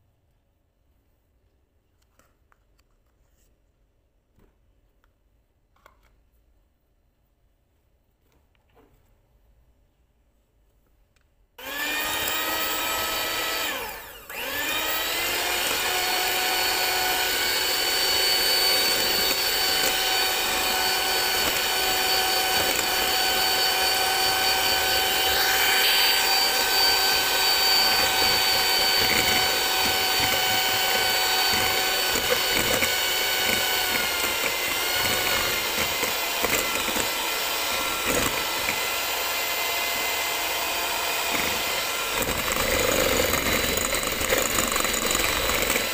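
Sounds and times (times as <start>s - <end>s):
electric hand mixer whining: 11.6s - 45.9s.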